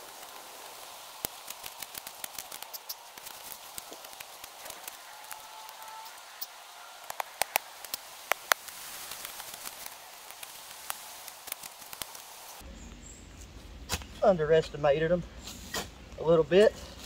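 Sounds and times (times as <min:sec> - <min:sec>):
light hiss: 0:00.0 - 0:13.1.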